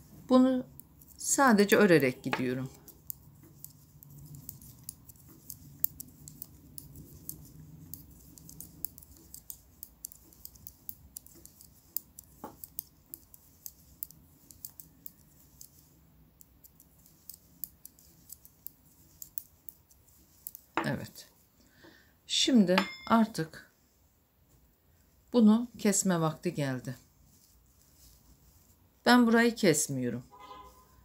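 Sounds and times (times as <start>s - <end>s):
knitting needles clicking: 0.6s - 21.2s.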